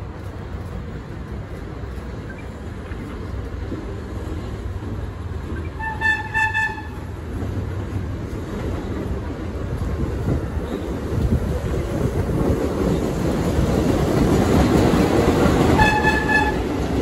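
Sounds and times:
subway train rumbling on rails: 0.0 - 17.0
train horn blast: 5.8 - 7.0, 15.7 - 16.8.

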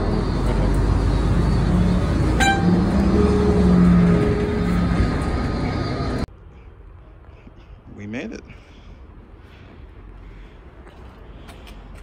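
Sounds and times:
bus engine rumbling: 0.0 - 12.0
short high ding: 2.4 - 4.5.

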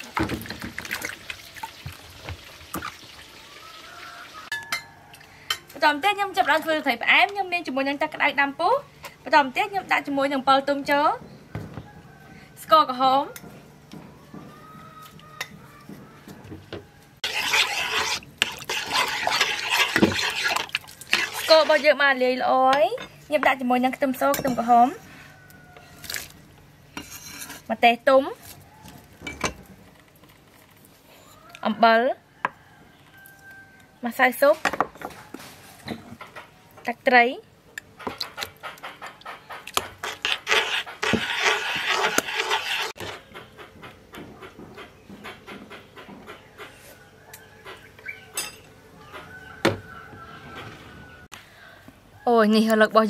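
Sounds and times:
water sloshing in metal pot: 0.0 - 3.2, 17.2 - 22.1
broth boiling: 17.2 - 22.0.

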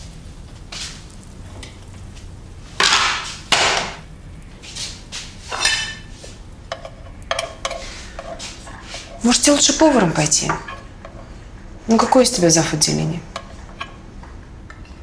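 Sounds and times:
spatula scraping in pan: 4.6 - 11.6, 13.3 - 14.1
plates clinking: 5.5 - 6.1.

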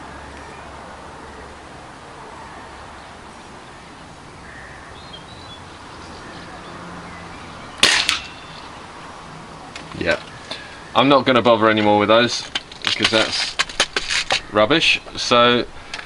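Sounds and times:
air rifle shot: 7.8 - 8.5.

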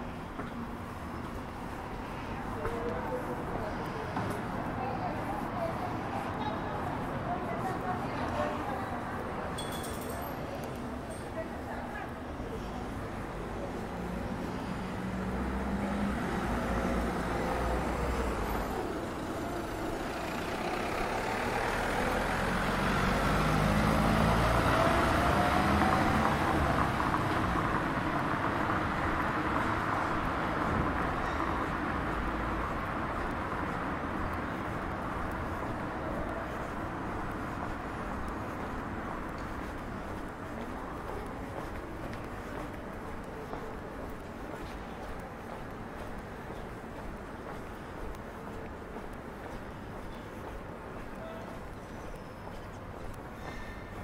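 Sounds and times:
road noise: 0.0 - 54.0
vehicle engine passing by: 13.9 - 31.2.

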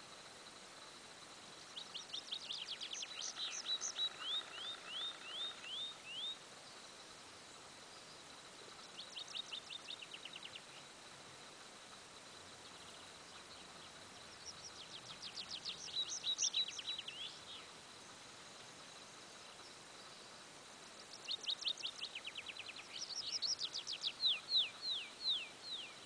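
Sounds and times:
songbird trilling: 1.8 - 6.4, 12.8 - 17.7, 21.1 - 26.0.

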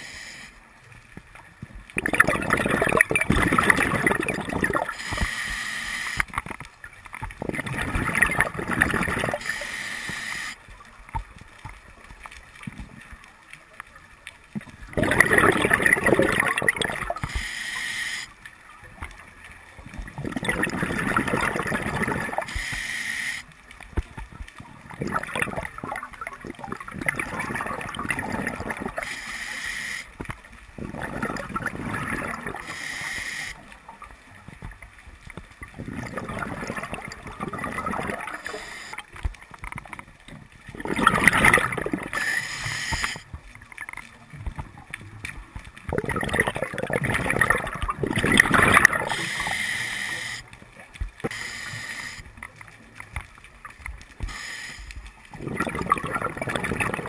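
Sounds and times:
regulator hissing inhalations: 0.0 - 0.6, 4.8 - 6.3, 9.4 - 10.6, 17.2 - 18.4, 22.4 - 23.5, 29.0 - 30.2, 32.6 - 33.7, 38.3 - 39.1, 42.1 - 43.3, 49.0 - 50.5, 51.2 - 52.3, 54.2 - 55.0
exhaled air bubbling: 1.2 - 57.0.

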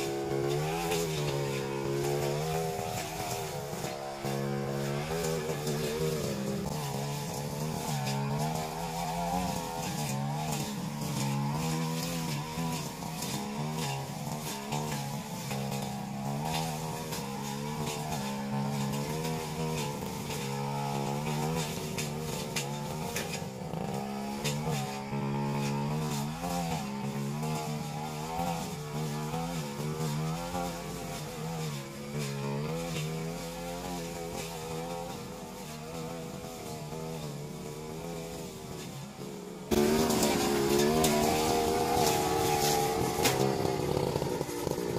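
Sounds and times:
brush cutter engine cutting weeds: 0.0 - 44.9.

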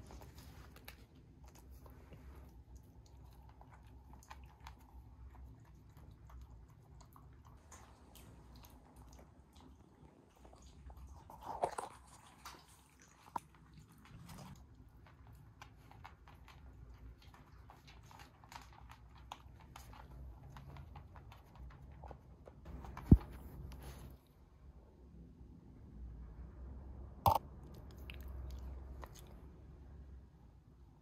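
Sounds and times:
dog crunching dry food: 7.1 - 22.2.

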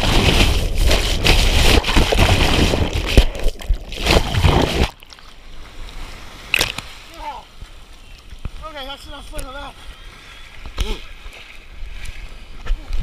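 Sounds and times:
surf rushing over camera: 0.0 - 5.0.

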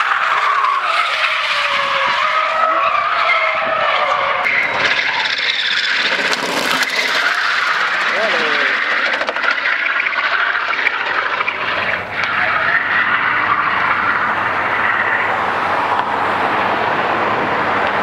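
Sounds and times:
tyres skidding on asphalt: 0.0 - 18.0
car engine at high revs: 11.5 - 18.0.

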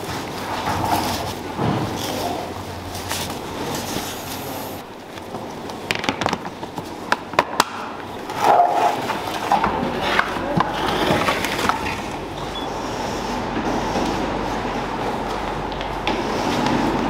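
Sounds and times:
steady background hiss: 0.0 - 10.4.

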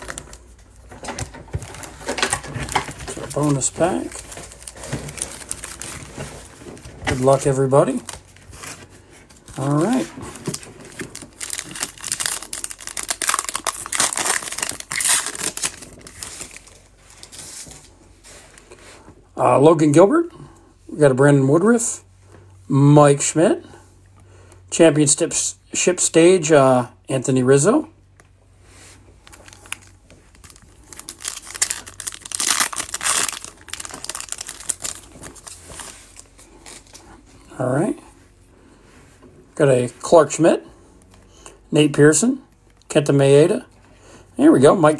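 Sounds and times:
foil wrapper crinkling: 0.0 - 8.7, 9.4 - 17.9, 29.2 - 37.0
cards rustling: 0.0 - 17.9, 29.2 - 37.3.

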